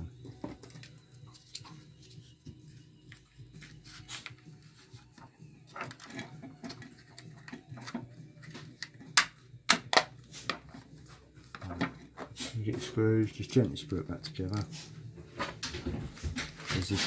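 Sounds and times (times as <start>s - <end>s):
plastic casing clicks and taps: 8.6s - 10.6s
plastic snaps: 8.6s - 10.6s.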